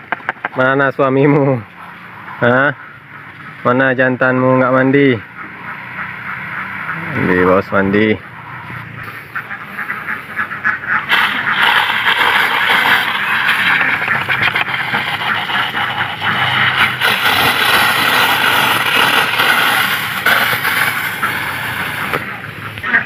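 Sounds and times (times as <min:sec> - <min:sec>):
pressure sprayer hissing: 0:11.0 - 0:22.8.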